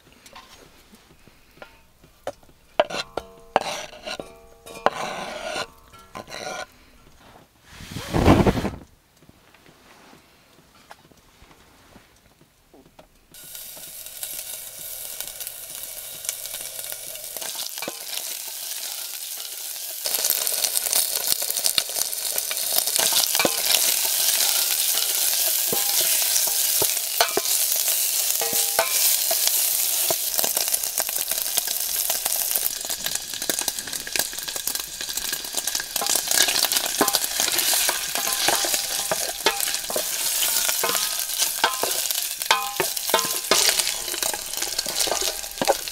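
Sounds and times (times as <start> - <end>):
food sizzling in a saucepan: 0.0 - 6.7, 13.3 - 45.9
wooden spatula scraping a pan: 0.3 - 8.8, 22.4 - 31.3, 35.6 - 45.9.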